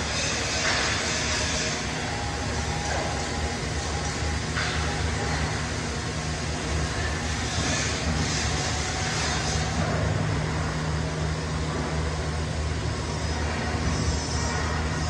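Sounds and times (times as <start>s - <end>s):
welding arc hissing: 7.2s - 9.9s.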